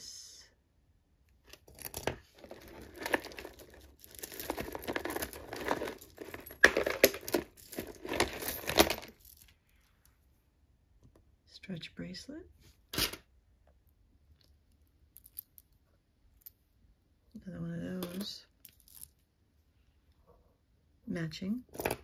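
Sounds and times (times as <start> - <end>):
bag crinkling and rustling: 1.7 - 9.6.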